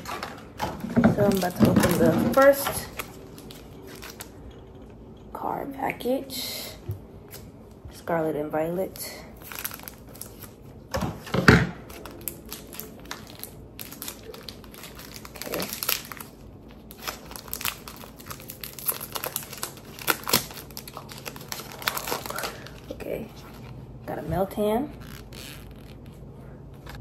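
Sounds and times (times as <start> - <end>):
foil wrapper crinkling: 0.0 - 4.4, 9.0 - 10.7, 11.8 - 23.8.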